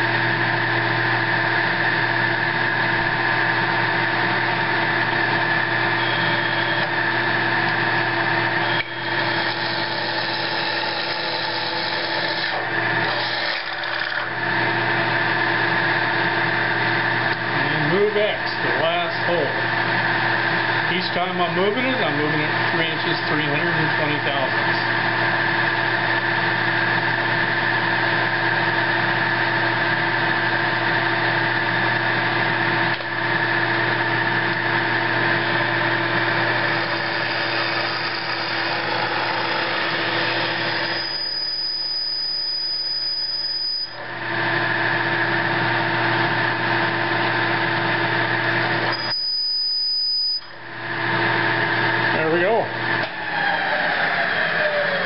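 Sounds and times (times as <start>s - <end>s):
drill motor hum: 0.0s - 55.0s
drill bit cutting steel: 3.5s - 15.1s, 34.2s - 44.4s, 48.8s - 50.6s
thin high whine: 40.6s - 44.1s, 48.8s - 50.7s.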